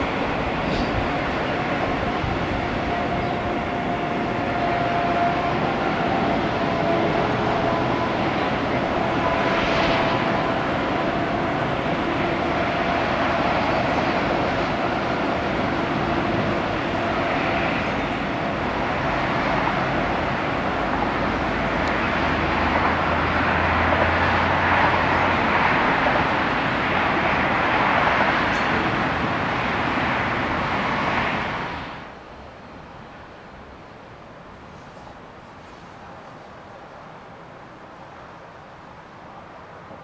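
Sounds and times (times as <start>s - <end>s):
distant train wheels on rails: 0.0s - 40.0s.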